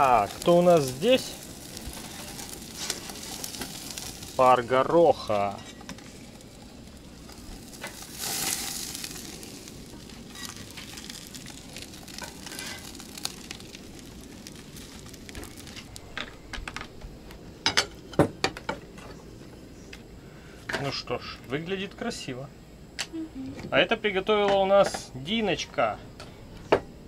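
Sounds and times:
tongs ticking on grill grate: 0.0 - 4.4, 6.9 - 16.0
fish sizzling on a grill: 0.0 - 19.0.

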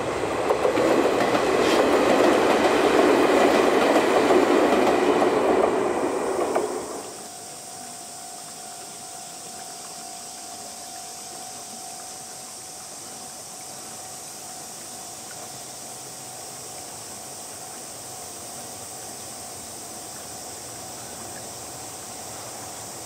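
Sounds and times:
outdoor ambient hiss: 0.0 - 23.0
faint thin steady tone: 6.8 - 23.0.

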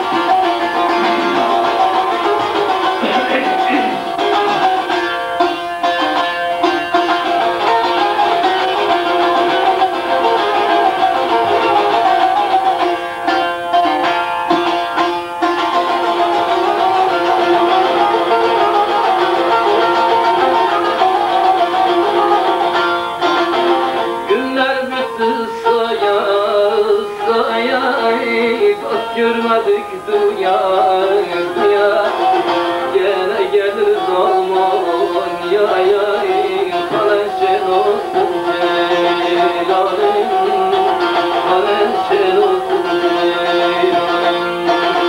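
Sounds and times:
plucked long-necked lute melody: 0.0 - 45.0.

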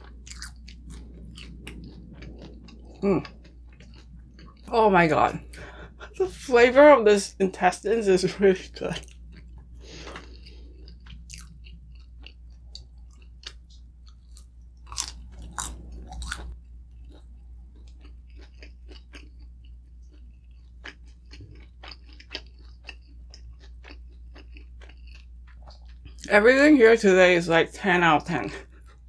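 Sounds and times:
close chewing and crunching: 0.0 - 6.2, 8.2 - 26.7, 28.1 - 29.0.

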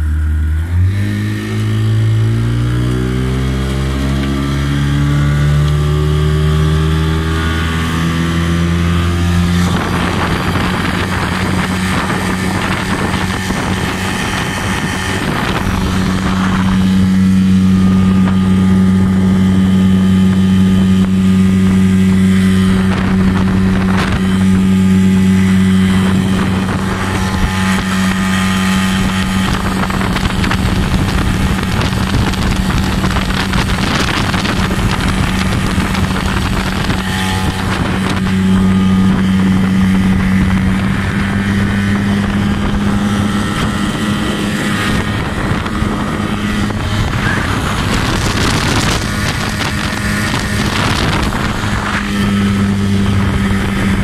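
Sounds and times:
outboard motor running: 0.0 - 54.0
wind on microphone: 0.0 - 54.0
rushing water: 1.3 - 54.0.

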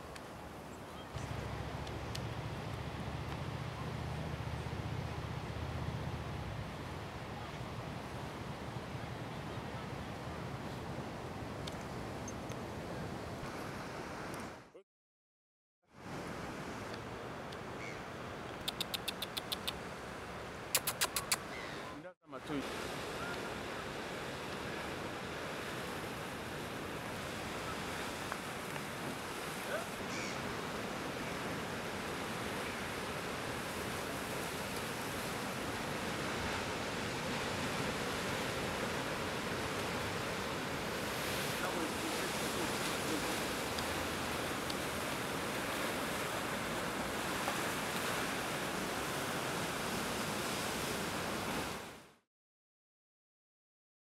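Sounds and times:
sharp click: 18.6 - 19.8, 20.8 - 21.4
ocean surf hissing: 22.4 - 51.9.

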